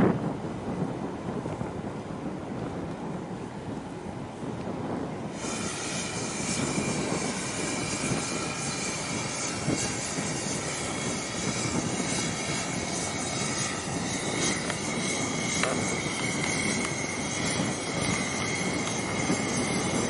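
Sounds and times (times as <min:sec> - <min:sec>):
engine drone: 0:05.3 - 0:20.0
high-pitched whine: 0:05.3 - 0:20.0.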